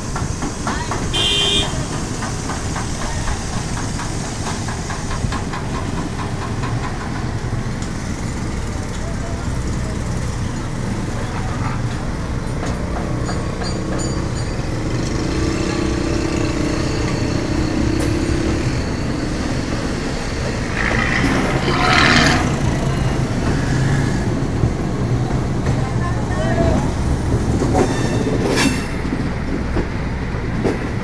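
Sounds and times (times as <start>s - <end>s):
street traffic engine drone: 0.0s - 31.0s
passing vehicle noise: 6.5s - 31.0s.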